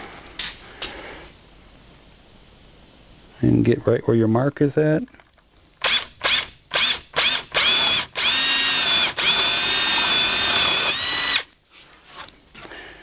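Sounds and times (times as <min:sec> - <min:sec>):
cordless drill boring into wood: 0:05.8 - 0:11.5.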